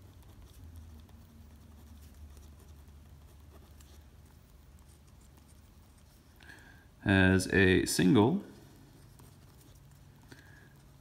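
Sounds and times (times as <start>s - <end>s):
pen scratching on paper: 0.0s - 6.2s
low room hum: 0.0s - 11.0s.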